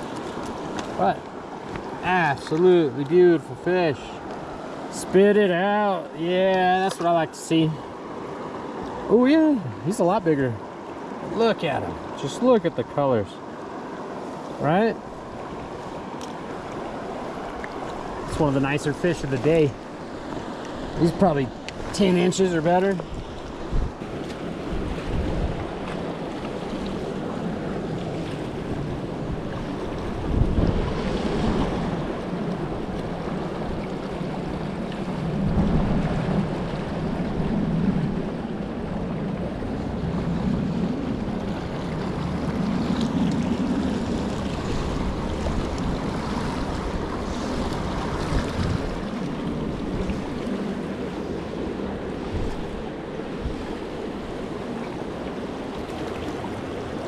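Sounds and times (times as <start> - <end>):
wind buffeting microphone: 19.2 - 57.0.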